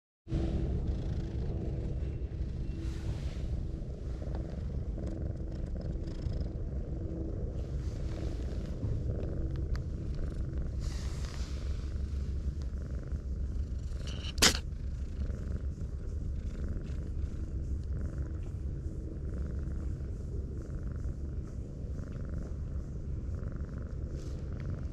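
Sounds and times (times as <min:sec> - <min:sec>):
cat purring: 0:00.3 - 0:24.9
sharp click: 0:14.0 - 0:14.6.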